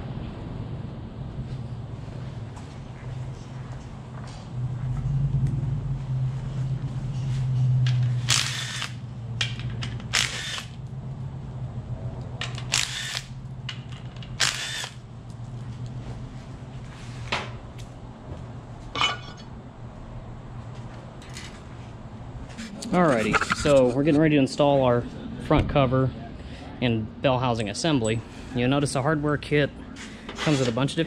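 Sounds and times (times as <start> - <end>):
steady low hum: 0.0 - 31.0
metal parts clanking on workbench: 19.0 - 19.5.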